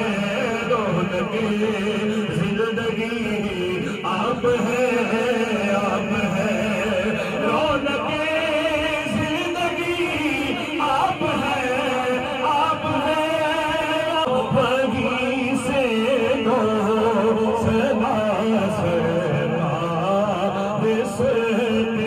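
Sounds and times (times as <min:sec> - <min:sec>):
man singing into microphone: 0:00.0 - 0:22.0.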